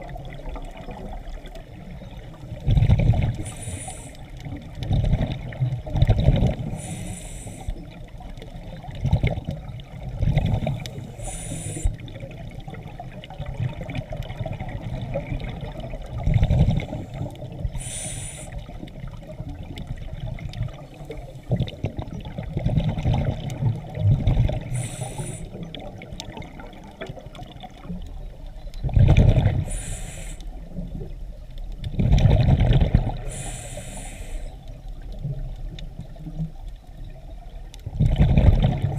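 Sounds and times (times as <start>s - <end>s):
exhaled bubbles gurgling underwater: 0.0s - 38.9s
regulator inhalation hiss: 3.4s - 4.3s, 6.7s - 7.8s, 11.0s - 12.1s, 16.9s - 18.7s, 24.7s - 25.6s, 29.6s - 30.5s, 33.3s - 34.6s.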